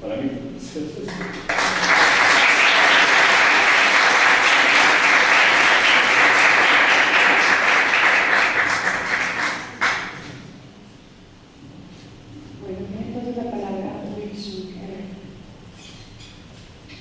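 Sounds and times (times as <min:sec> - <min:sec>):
audience applauding: 0:01.1 - 0:10.4.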